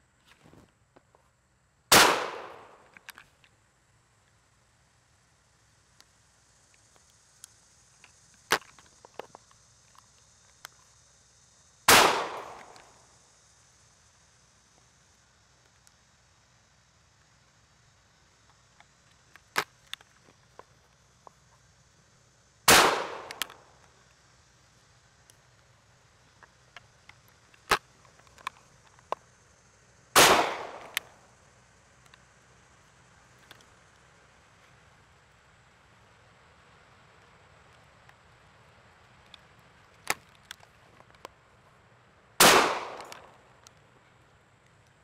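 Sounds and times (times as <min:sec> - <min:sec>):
gunshots: 0:01.9 - 0:02.8, 0:11.9 - 0:12.8, 0:22.7 - 0:23.4, 0:30.2 - 0:31.0, 0:42.4 - 0:43.2
loud shotgun shot: 0:01.9 - 0:02.8, 0:11.9 - 0:12.8, 0:22.7 - 0:23.4, 0:30.2 - 0:31.0, 0:42.4 - 0:43.2
metallic gun clicks: 0:22.8 - 0:23.6, 0:30.3 - 0:31.1, 0:42.5 - 0:43.3
light clicks: 0:23.2 - 0:23.9.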